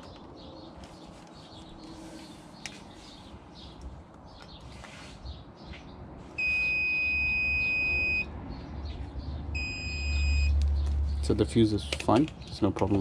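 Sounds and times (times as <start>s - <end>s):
multimeter continuity beep: 6.4s - 8.3s, 9.6s - 10.6s.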